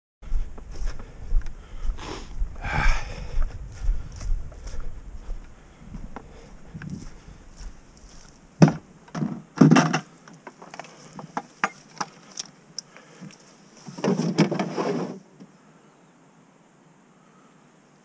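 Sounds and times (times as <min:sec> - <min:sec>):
rustling shuffle: 0:00.2 - 0:02.6, 0:03.4 - 0:08.4, 0:10.5 - 0:15.2
loud thumps: 0:08.6 - 0:10.0.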